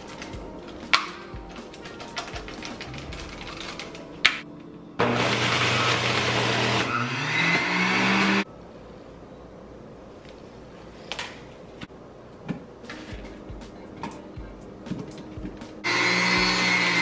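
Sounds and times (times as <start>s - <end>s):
juicer motor running: 5.0s - 8.4s, 15.8s - 17.0s.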